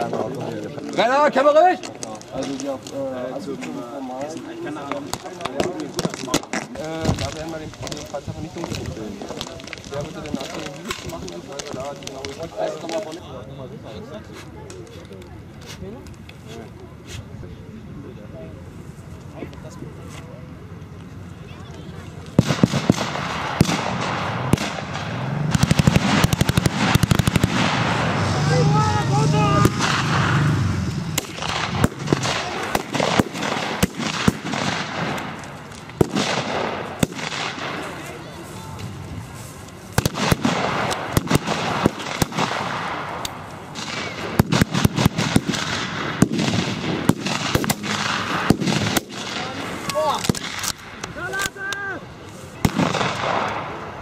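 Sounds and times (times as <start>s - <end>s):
single rifle shots: 22.4s - 28.2s, 31.1s - 38.0s, 40.0s - 51.5s, 52.6s - 53.8s
machine-gun bursts: 25.5s - 27.8s.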